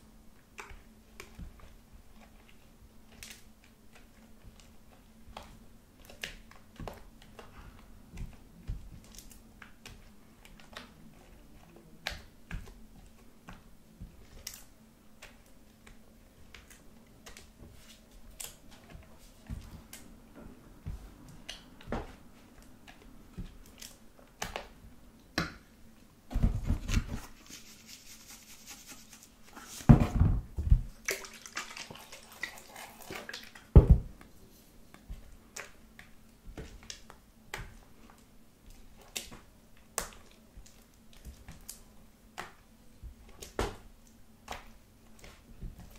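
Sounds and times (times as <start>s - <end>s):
slime stirred with spatula: 0.4s - 24.8s, 26.5s - 30.0s, 30.9s - 45.9s
slime squelching: 30.9s - 33.7s.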